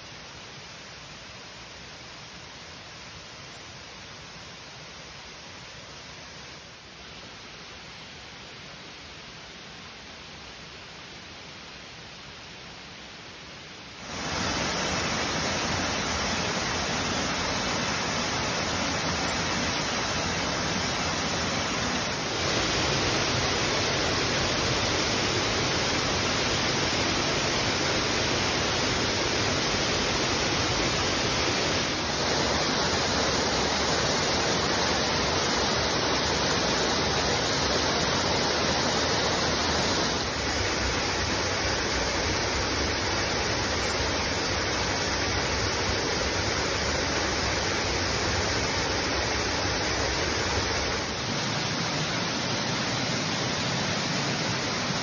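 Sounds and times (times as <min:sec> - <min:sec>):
waterfall rushing: 0:14.0 - 0:55.0.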